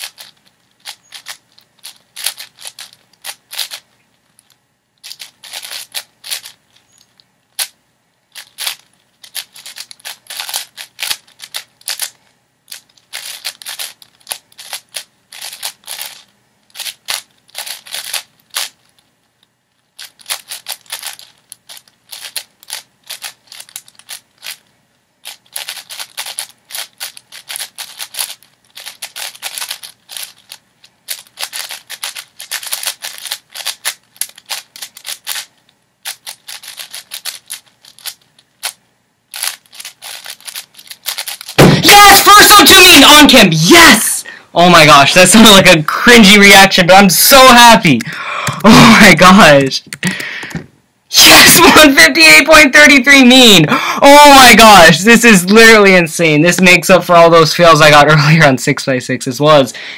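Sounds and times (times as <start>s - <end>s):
puzzle cube clicking turns: 0.0s - 19.1s, 20.0s - 44.0s, 47.8s - 50.7s.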